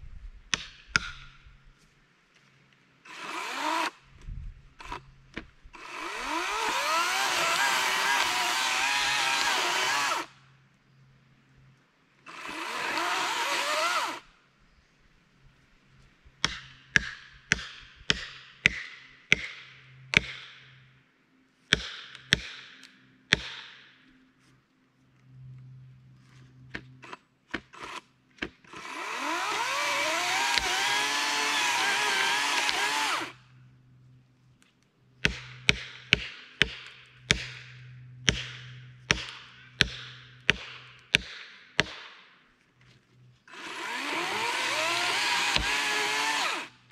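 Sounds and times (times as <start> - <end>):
electric chainsaw cutting wood: 3.1 - 4.0, 5.8 - 10.3, 12.3 - 14.2, 27.0 - 28.1, 28.7 - 33.4, 43.5 - 46.9.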